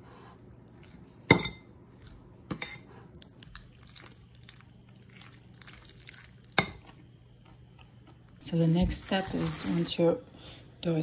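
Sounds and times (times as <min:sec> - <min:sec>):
fork mixing in a bowl: 0:00.0 - 0:06.8.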